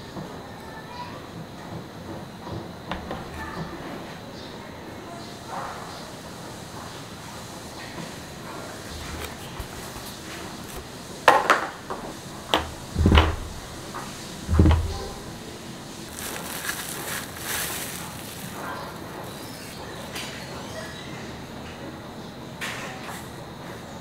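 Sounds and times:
plastic wrap crinkling: 12.7 - 20.1.

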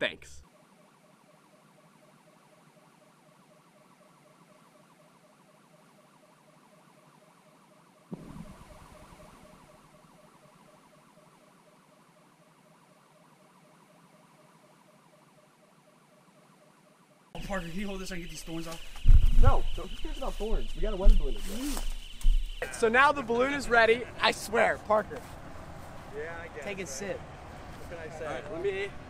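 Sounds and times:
rapid pulsing beeps: 0.5 - 25.0
sudden thump: 19.0 - 19.8.

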